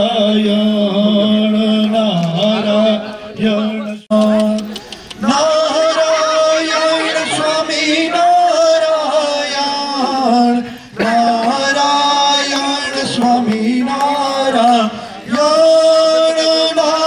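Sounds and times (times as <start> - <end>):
man chanting in sung melody: 0.0 - 17.0.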